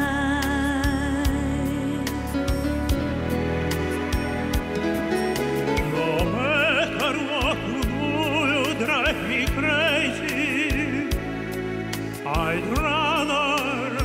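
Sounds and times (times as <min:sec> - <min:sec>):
recorded accompaniment with drum hits: 0:02.1 - 0:14.0
male tenor singing operatically: 0:05.8 - 0:11.2, 0:12.3 - 0:14.0.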